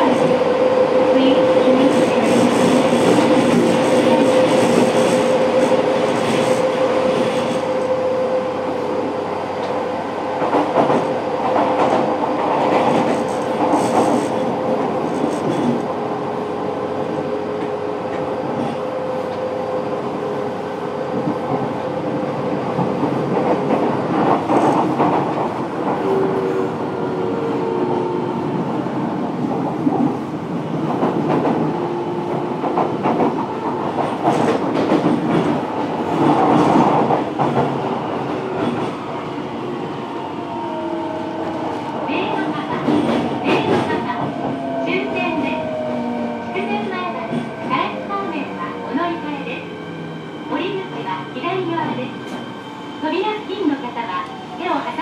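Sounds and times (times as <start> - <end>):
train wheels rumbling on rails: 0.0 - 55.0
rail joint clicks: 9.6 - 9.8, 22.6 - 26.6, 29.4 - 39.1, 41.4 - 49.2.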